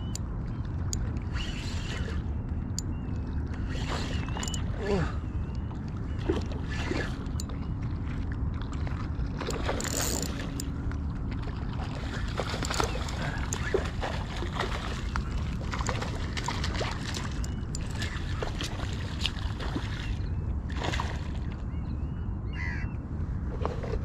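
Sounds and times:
wind rumble on microphone: 0.0s - 24.0s
fishing reel clicks: 3.8s - 4.6s, 9.8s - 10.7s
fish splashing in water: 11.4s - 21.5s.

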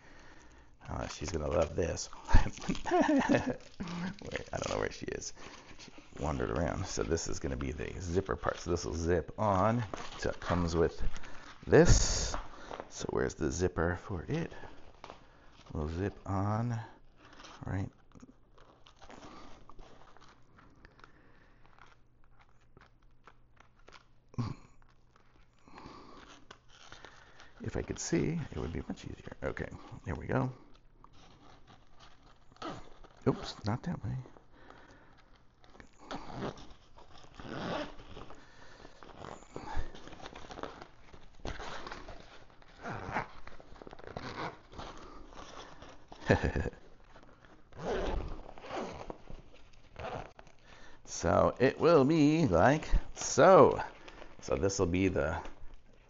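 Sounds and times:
fabric rustling: 0.0s - 17.6s, 34.3s - 56.0s
zipper clicks: 35.3s - 50.6s.

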